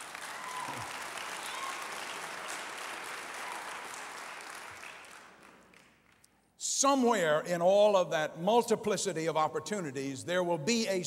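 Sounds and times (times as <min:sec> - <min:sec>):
congregation applauding: 0:00.0 - 0:06.3.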